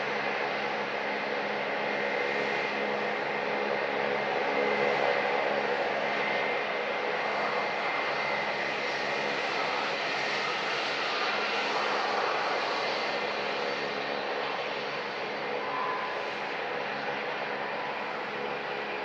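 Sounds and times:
jet airliner taxiing: 0.0 - 19.0.

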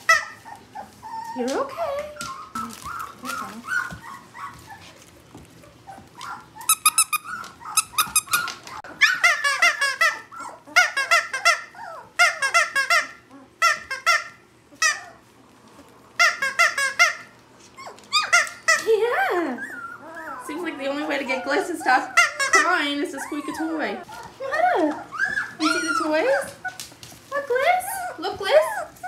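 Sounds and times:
squeaky dog toy squeaking: 6.6 - 15.2, 16.2 - 17.3, 18.1 - 18.9, 22.0 - 23.7, 25.2 - 26.4.

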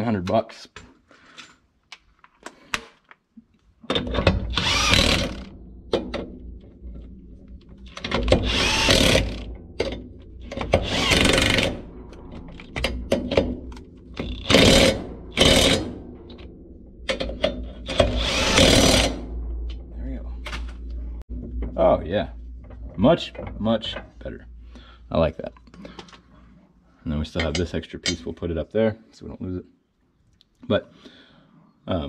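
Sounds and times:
impact wrench hammering: 8.0 - 16.5, 17.1 - 19.3.

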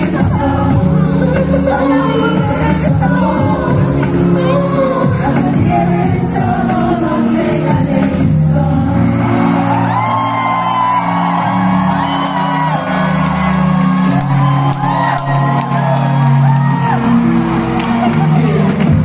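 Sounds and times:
live pop music over sound system: 0.0 - 19.0
crowd whooping and shouting: 9.0 - 19.0.

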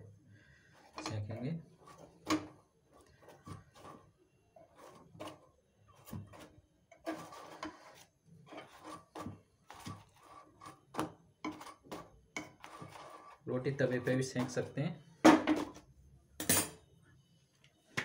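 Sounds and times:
spatula scraping burner grate: 0.5 - 14.7.

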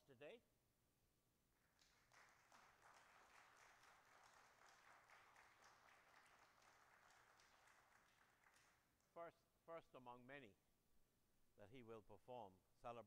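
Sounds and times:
faint congregation applause: 1.6 - 9.2.

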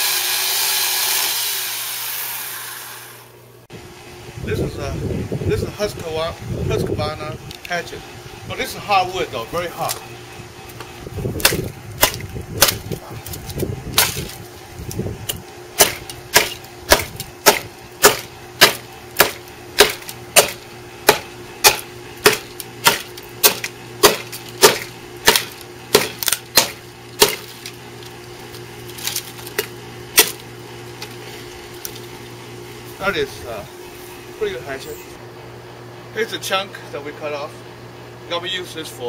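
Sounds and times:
steady low hum: 2.9 - 39.0
hatchet chopping wood: 11.4 - 14.4, 15.3 - 27.8, 29.0 - 30.5.

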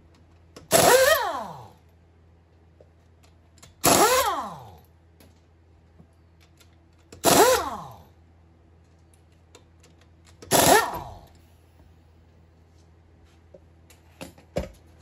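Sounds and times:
pneumatic impact wrench bursts: 0.6 - 1.8, 3.8 - 4.8, 7.2 - 8.0, 10.4 - 11.3.

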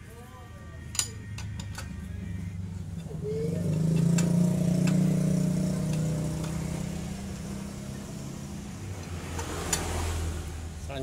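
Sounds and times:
low engine-like hum: 0.1 - 11.0
hand tools clicking: 3.0 - 5.1.

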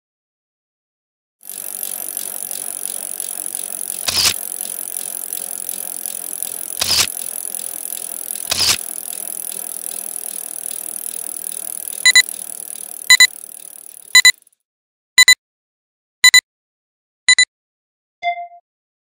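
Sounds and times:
bicycle freewheel buzzing: 1.4 - 14.5.

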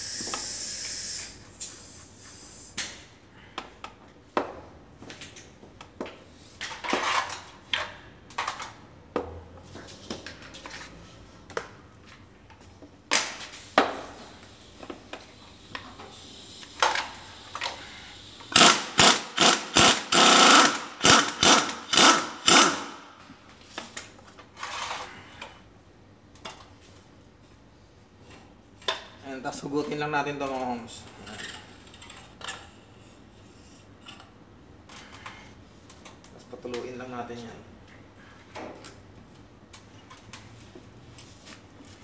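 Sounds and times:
pneumatic impact wrench hammering: 0.0 - 2.0, 15.6 - 23.3.

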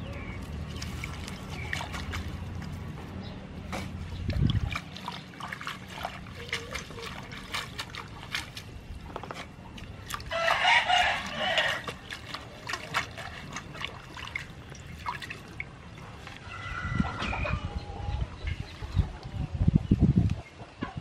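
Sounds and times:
water splashing and dripping in bowl: 0.4 - 3.0, 3.8 - 16.5
chicken calling: 10.2 - 12.1
rooster crowing: 10.3 - 11.9.

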